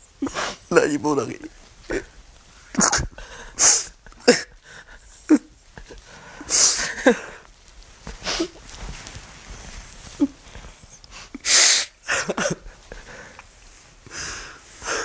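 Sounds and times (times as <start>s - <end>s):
man sobbing: 1.8s - 7.5s, 11.3s - 13.4s.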